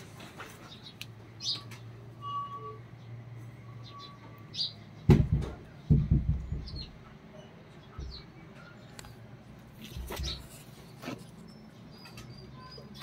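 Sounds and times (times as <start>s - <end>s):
birds chirping and whistling: 0.6s - 5.2s, 9.9s - 13.0s
loud dull thumps: 5.1s - 7.0s.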